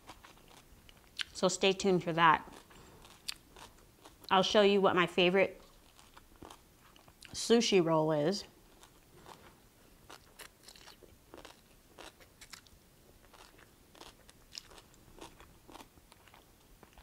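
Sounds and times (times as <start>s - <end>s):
crunchy chewing: 0.0s - 1.4s, 2.4s - 4.3s, 5.6s - 7.4s, 8.7s - 17.0s.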